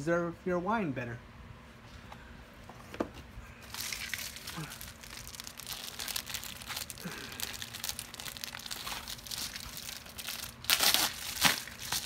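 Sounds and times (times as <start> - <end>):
packaging crinkling: 3.6 - 12.0.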